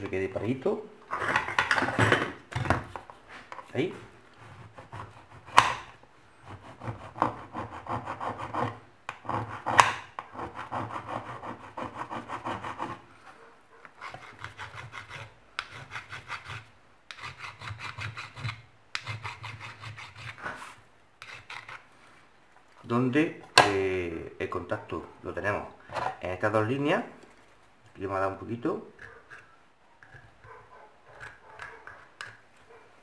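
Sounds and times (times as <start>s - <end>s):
metal file rasping: 6.5s - 13.0s, 14.0s - 20.6s, 21.2s - 21.8s.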